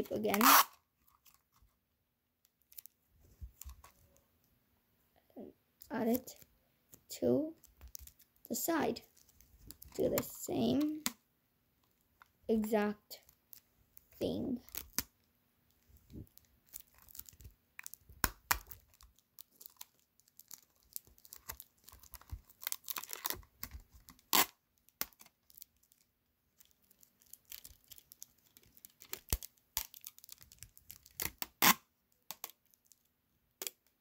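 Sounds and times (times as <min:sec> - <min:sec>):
sticky tape pulled and torn: 0:00.1 - 0:01.4, 0:21.2 - 0:25.3, 0:27.2 - 0:32.7.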